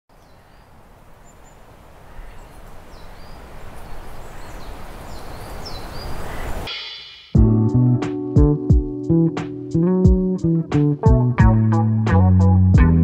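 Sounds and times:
bird chirps: 0.1 - 7.0.

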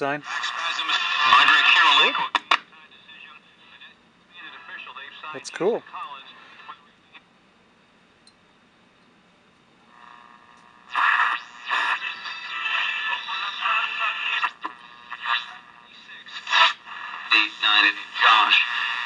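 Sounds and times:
radio broadcast through loudspeaker: 0.0 - 6.9, 10.9 - 19.0.

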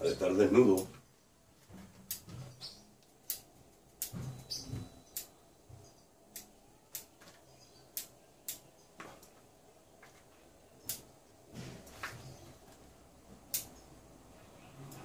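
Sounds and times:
scissors snipping twigs: 3.0 - 5.3, 6.3 - 9.4, 13.4 - 13.8.

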